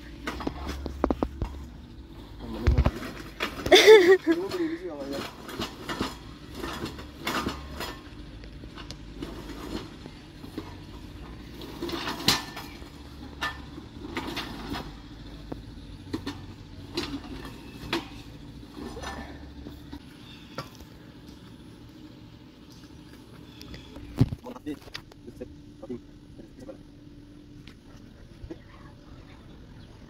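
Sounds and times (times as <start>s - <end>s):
steel rollers clanking and rattling: 0.0s - 25.1s.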